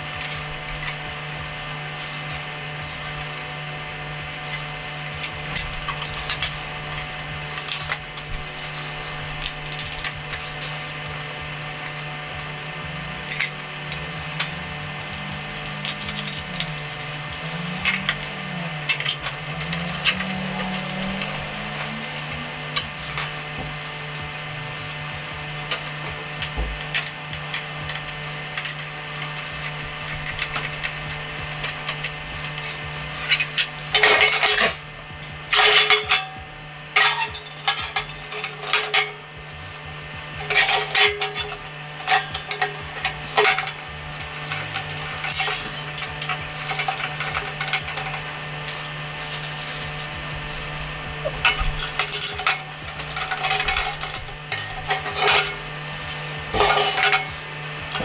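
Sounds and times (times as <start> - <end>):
steady low hum: 0.0 - 58.0
steel parts clattering: 0.1 - 3.6, 4.4 - 23.8, 25.6 - 34.8, 35.5 - 36.4, 37.0 - 39.3, 40.4 - 58.0
metal fittings clinking: 13.2 - 23.3, 40.4 - 58.0.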